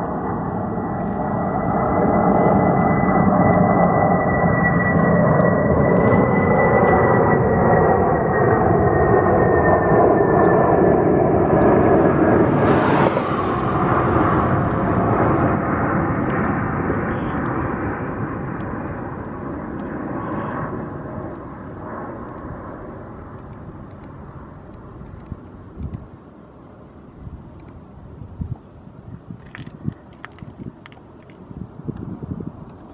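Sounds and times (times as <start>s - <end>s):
jet engines whining: 0.0s - 28.2s.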